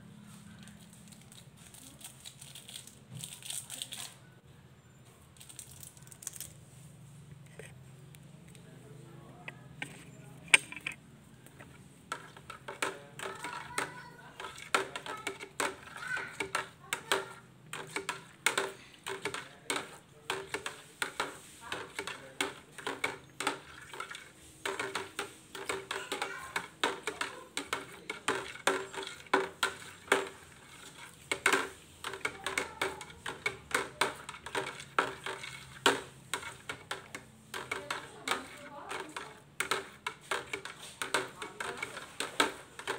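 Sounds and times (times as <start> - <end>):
utensil knocking against bucket: 11.6 - 42.9.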